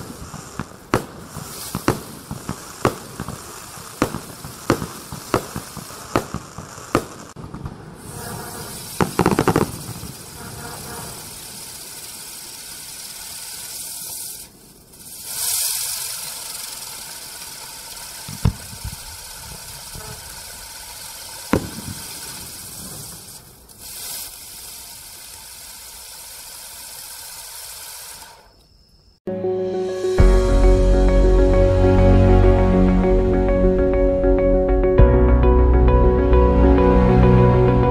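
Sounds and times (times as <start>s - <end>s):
sharp firework pops: 0.0s - 25.3s
firework crackles: 0.0s - 29.2s
firework spinning and hissing: 0.0s - 29.2s.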